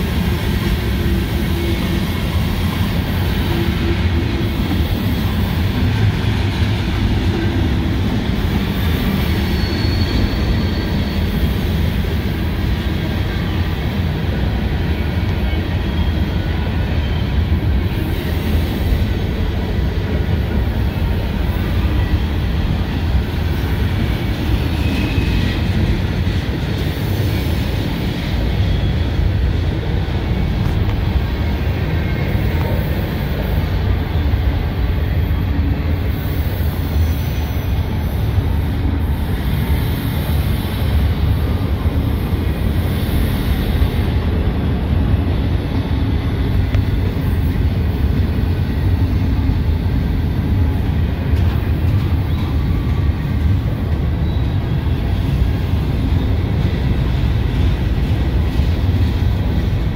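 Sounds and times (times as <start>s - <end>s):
train wheels rumbling on rail: 0.0s - 59.9s
faint wheel squeals: 9.2s - 11.6s.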